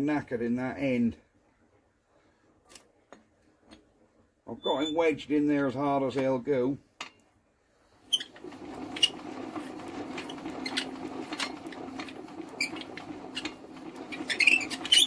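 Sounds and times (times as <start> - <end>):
sharp squeaks and clicks: 4.5 - 5.1, 8.1 - 8.4, 12.6 - 15.0.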